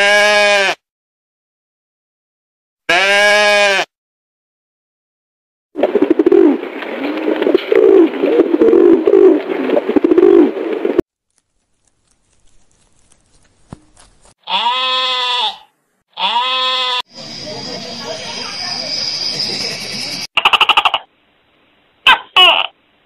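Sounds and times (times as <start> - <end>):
pigeons cooing: 5.8 - 11.0
short pitched cries: 14.4 - 17.0.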